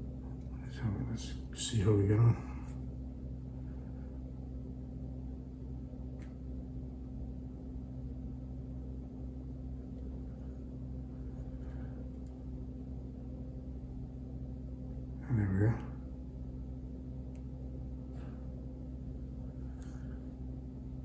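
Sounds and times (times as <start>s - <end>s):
low room tone hum: 0.0s - 21.0s.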